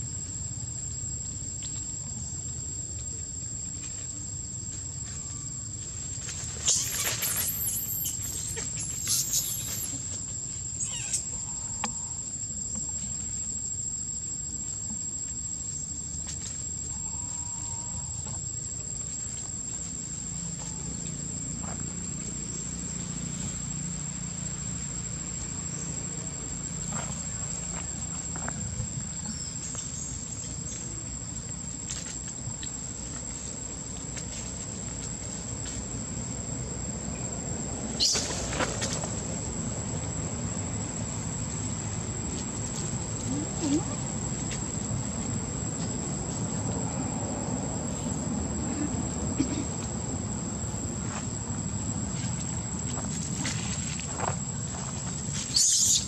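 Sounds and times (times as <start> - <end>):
high-pitched insect drone: 4.7 - 14.8, 15.6 - 33.6, 39.7 - 56.0
monkey screaming: 6.6 - 10.0, 10.8 - 11.5, 55.5 - 56.0.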